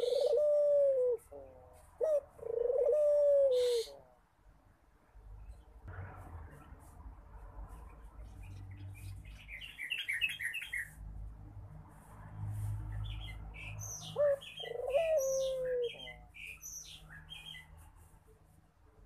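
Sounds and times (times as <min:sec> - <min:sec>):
small birds chirping: 0:07.6 - 0:11.1, 0:12.8 - 0:18.4.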